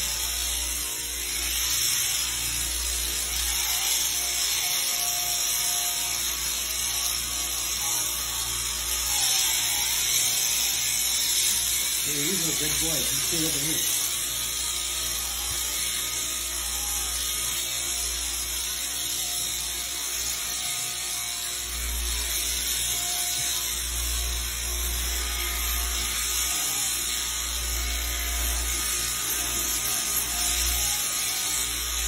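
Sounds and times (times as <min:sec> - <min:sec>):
electric shears running: 0:00.0 - 0:32.0.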